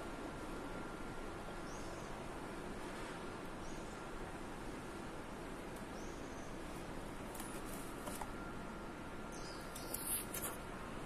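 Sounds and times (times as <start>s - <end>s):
steady background hiss: 0.0s - 11.0s
faint high chirp: 0.6s - 2.3s, 7.4s - 10.6s.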